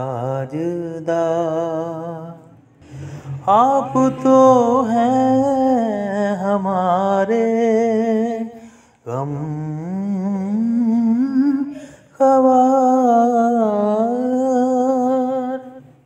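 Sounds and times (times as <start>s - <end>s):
solo person singing: 0.0s - 16.0s.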